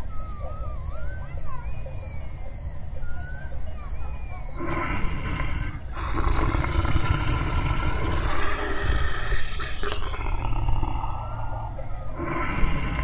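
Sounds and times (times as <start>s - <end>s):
bears growling: 4.5s - 13.0s.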